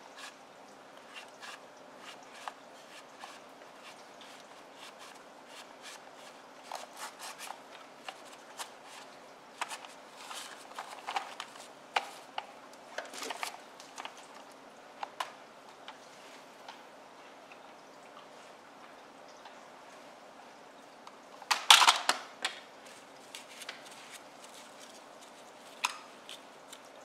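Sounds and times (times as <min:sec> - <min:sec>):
cloth rustling: 0:22.8 - 0:26.9.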